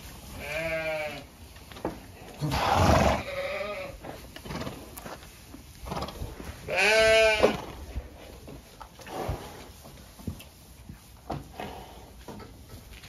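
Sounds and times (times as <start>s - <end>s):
sheep bleating: 0.4s - 1.2s, 2.7s - 4.0s, 6.7s - 7.6s.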